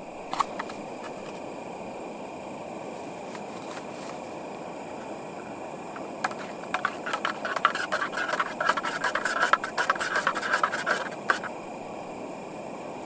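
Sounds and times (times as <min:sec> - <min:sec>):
gas burner hissing: 0:00.0 - 0:13.0
utensil scraping metal pot: 0:05.9 - 0:11.5.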